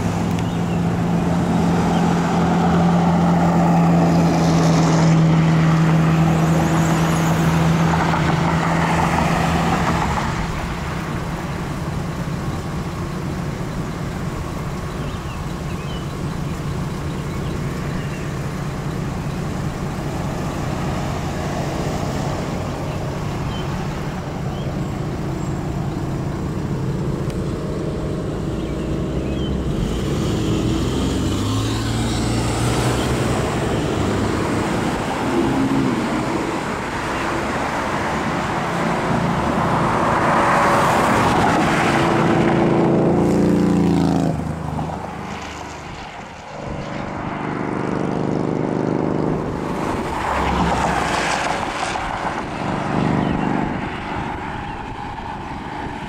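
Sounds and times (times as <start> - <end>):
vehicle passing close by: 0.0 - 11.2, 28.2 - 56.0
cars driving by: 0.0 - 56.0.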